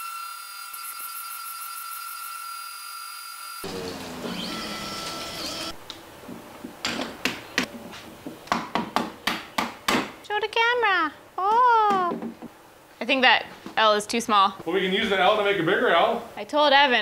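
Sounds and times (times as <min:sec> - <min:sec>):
router spindle whining: 0:00.0 - 0:05.8.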